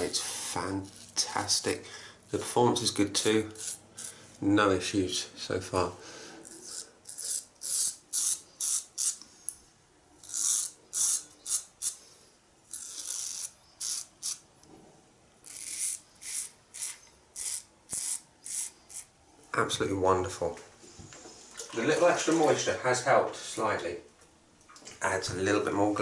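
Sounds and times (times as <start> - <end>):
razor scraping stubble: 3.2 - 4.2, 6.4 - 9.2, 10.2 - 12.0, 12.7 - 14.4, 15.4 - 19.1.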